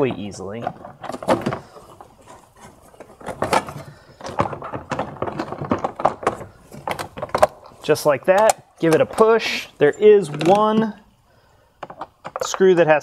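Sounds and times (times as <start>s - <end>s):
plastic knocks and scrapes: 0.0s - 7.8s.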